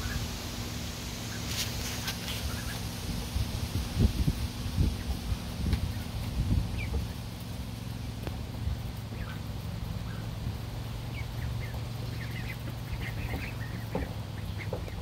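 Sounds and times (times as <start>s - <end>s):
ducklings peeping: 0.0s - 15.0s.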